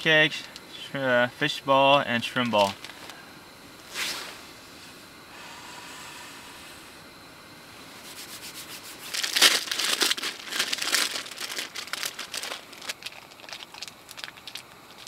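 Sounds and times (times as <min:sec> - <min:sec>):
plastic packet crinkling: 0:02.5 - 0:03.1, 0:09.1 - 0:15.0.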